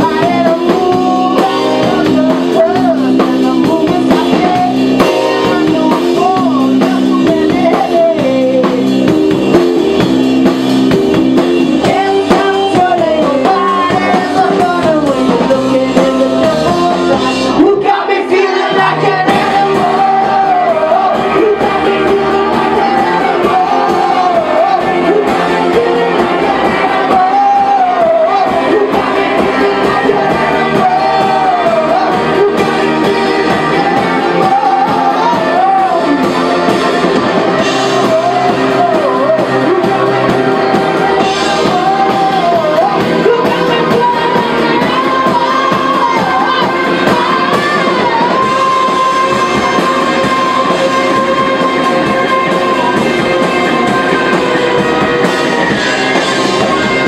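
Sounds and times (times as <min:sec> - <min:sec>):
electric guitar: 0:00.0 - 0:57.0
live rock band playing: 0:00.0 - 0:57.0
person singing: 0:00.0 - 0:57.0.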